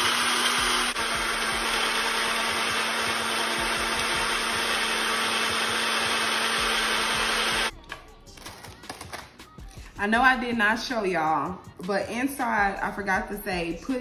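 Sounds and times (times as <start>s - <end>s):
blender whirring: 0.0s - 7.7s.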